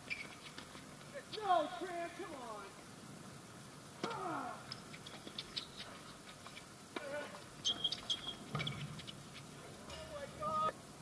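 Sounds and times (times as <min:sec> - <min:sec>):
shoes squeaking on court: 0:00.0 - 0:01.5, 0:04.7 - 0:10.2.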